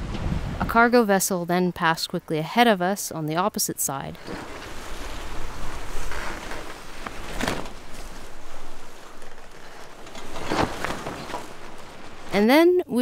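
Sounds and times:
rushing wind: 0:00.0 - 0:01.0, 0:04.2 - 0:12.4.

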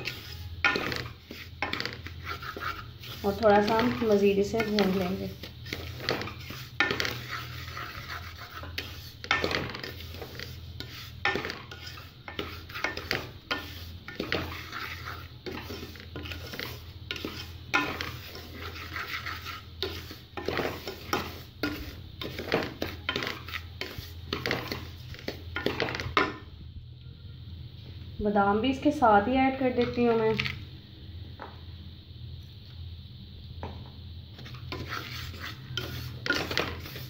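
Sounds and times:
wooden spoon scraping metal pot: 0:00.0 - 0:26.4, 0:34.4 - 0:37.0.

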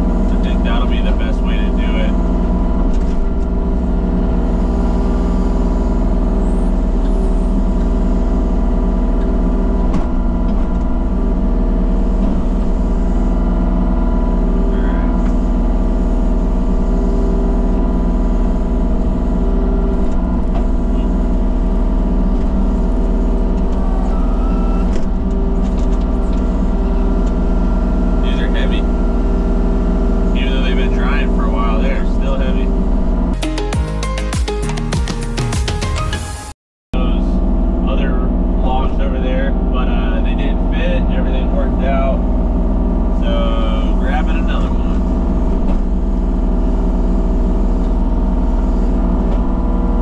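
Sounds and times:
engine running steadily: 0:00.0 - 0:34.7, 0:37.0 - 0:50.0.

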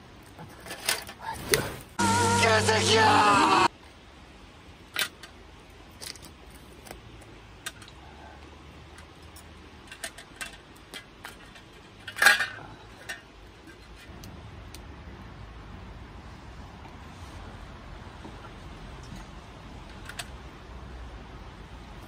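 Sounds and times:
loud noise: 0:02.0 - 0:03.7.

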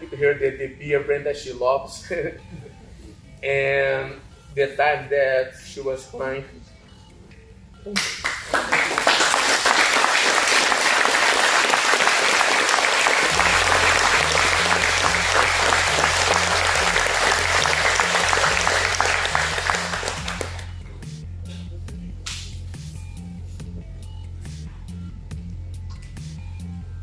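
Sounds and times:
music with low bass pulse: 0:01.4 - 0:03.5, 0:12.6 - 0:27.0
crowd applauding: 0:08.0 - 0:20.7.

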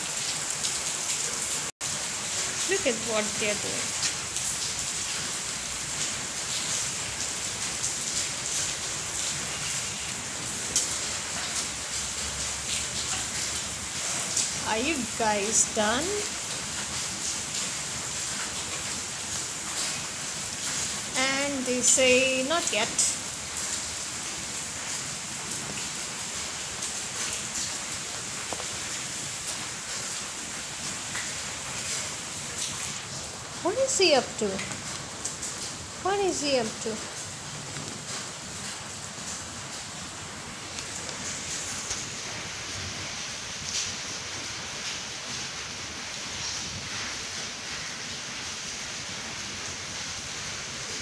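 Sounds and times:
steady rain hiss: 0:00.0 - 0:51.0.

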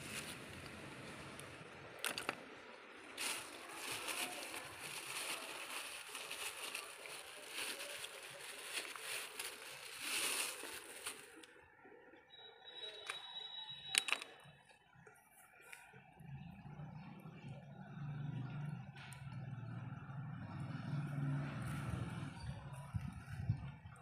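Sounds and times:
plastic bag rustling: 0:03.2 - 0:11.5.

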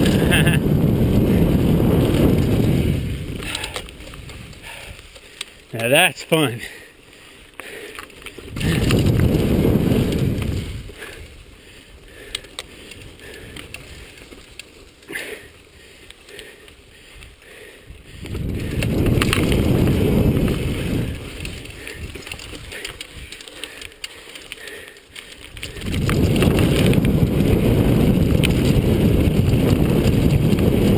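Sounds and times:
wind rumble on microphone: 0:00.0 - 0:05.2, 0:08.4 - 0:14.2, 0:17.1 - 0:23.4, 0:25.4 - 0:30.9.

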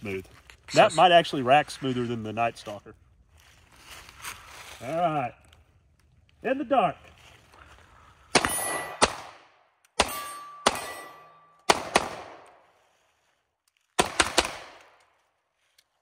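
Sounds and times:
pistol shots echoing: 0:08.3 - 0:12.6, 0:14.0 - 0:15.0.

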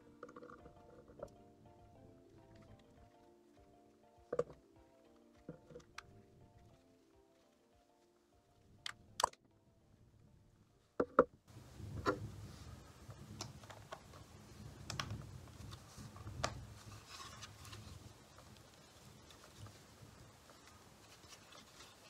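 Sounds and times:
plastic bricks clicking: 0:00.0 - 0:01.4, 0:08.8 - 0:09.4.

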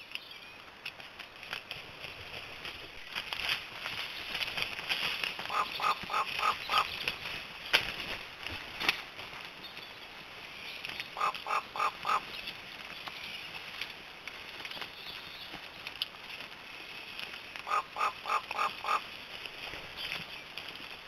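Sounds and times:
vultures calling: 0:05.4 - 0:07.2, 0:11.0 - 0:12.4, 0:17.4 - 0:19.2.

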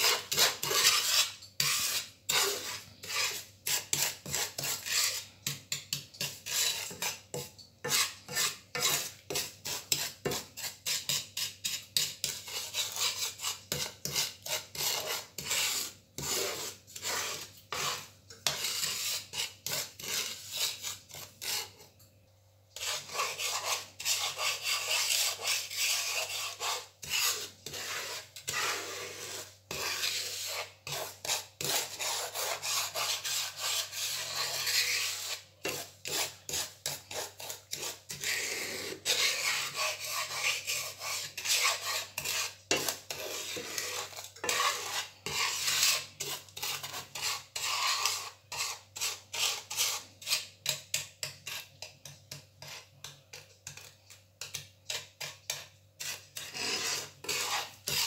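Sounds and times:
wooden spoon scraping sugar in pan: 0:00.0 - 0:22.0, 0:22.8 - 0:58.0.

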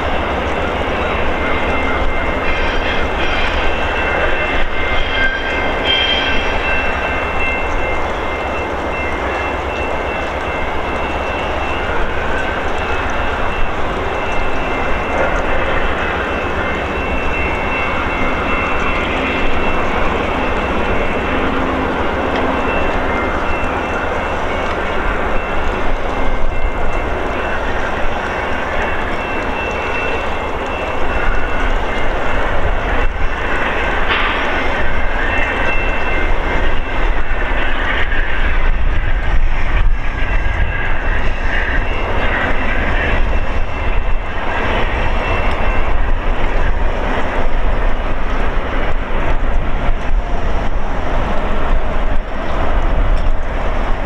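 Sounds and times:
train wheels rumbling on rails: 0:00.0 - 0:54.0
thin high ringing tone: 0:00.2 - 0:47.3.

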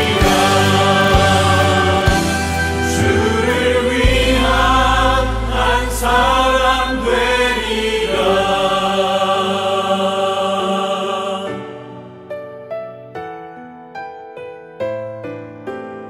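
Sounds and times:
choir singing worship song: 0:00.0 - 0:12.3.

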